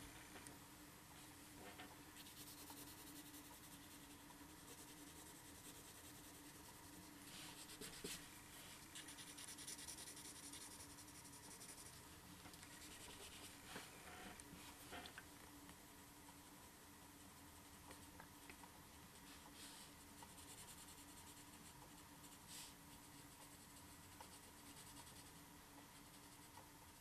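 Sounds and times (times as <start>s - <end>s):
low steady hum: 0.0s - 27.0s
pencil scratching on paper: 2.2s - 8.2s, 9.0s - 12.0s, 12.7s - 13.8s.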